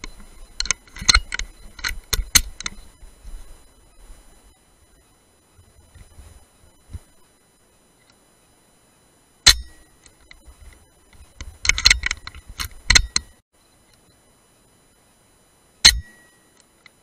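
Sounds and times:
rifle action clicks and rattles: 0:00.1 - 0:02.8, 0:09.5 - 0:13.3
air rifle shot with ringing: 0:09.4 - 0:09.9, 0:15.8 - 0:16.4.

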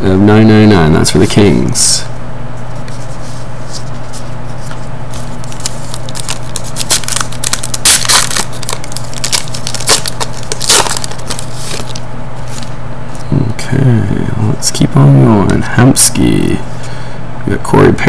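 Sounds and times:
steady low hum: 0:00.0 - 0:18.0
foil wrapper crinkling and tearing: 0:05.1 - 0:12.7.

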